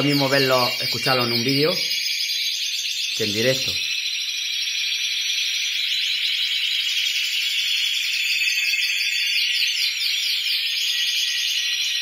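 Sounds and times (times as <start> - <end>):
canaries singing metallic trills: 0.0 - 12.0.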